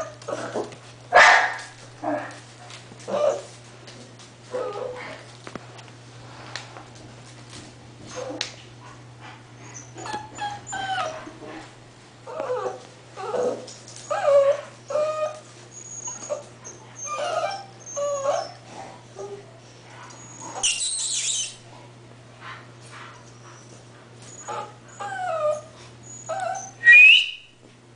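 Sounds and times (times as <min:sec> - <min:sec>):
puppies whimpering and yipping: 0:09.6 - 0:11.3, 0:12.3 - 0:19.4, 0:20.1 - 0:21.6, 0:23.4 - 0:27.4.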